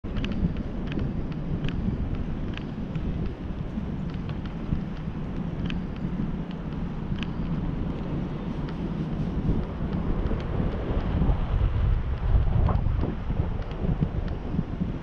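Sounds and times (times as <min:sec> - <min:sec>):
wind rumbling on microphone: 0:00.0 - 0:15.0
faint short ticks: 0:04.0 - 0:11.2.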